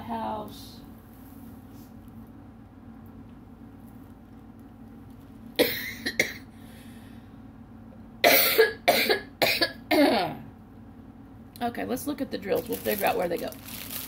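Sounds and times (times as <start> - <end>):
woman coughing: 5.6 - 6.5, 8.2 - 10.4.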